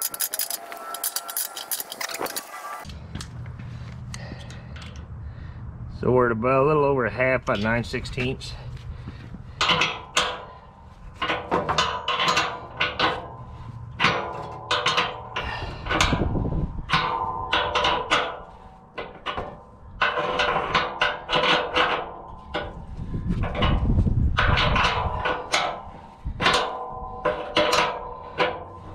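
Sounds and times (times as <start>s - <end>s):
wrench clinking on metal: 0.0s - 2.6s.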